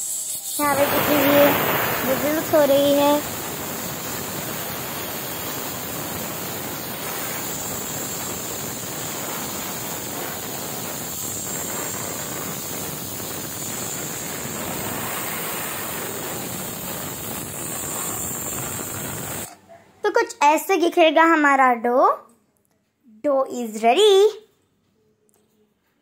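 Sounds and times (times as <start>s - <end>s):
pressure cooker steam hiss: 0.0s - 19.5s.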